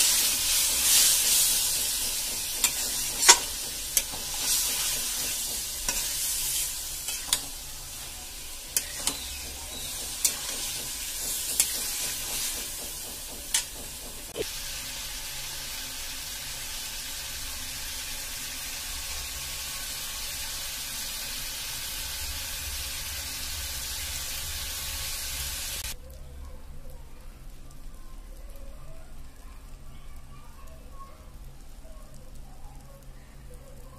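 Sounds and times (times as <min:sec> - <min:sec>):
food sizzling in oil: 0:00.0 - 0:26.0.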